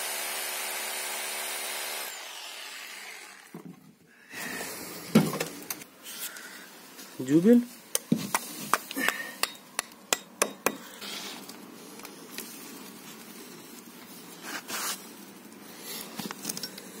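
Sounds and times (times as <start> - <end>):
scraping rustle: 11.0 - 16.6.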